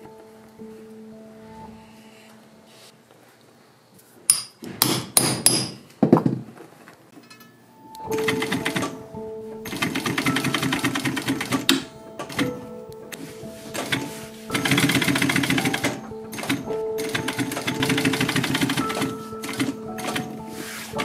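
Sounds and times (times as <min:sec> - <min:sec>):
background music: 0:00.0 - 0:03.0, 0:07.5 - 0:21.0.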